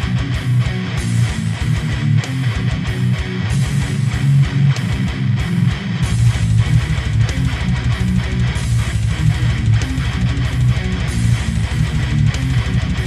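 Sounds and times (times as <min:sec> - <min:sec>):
bass guitar: 0:00.0 - 0:13.0
drums: 0:00.0 - 0:13.0
heavy electric guitar riffing: 0:00.0 - 0:13.0.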